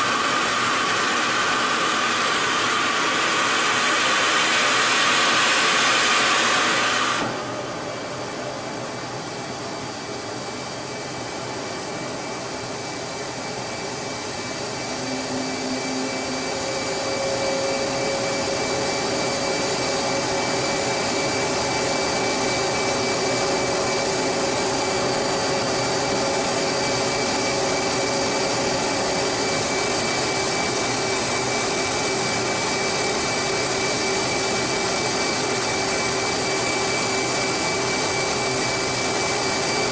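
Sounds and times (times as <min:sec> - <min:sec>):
jet engine rushing hiss: 0:00.0 - 0:08.7, 0:13.7 - 0:31.3
thin high whines: 0:12.0 - 0:31.6
low hum: 0:14.5 - 0:20.0.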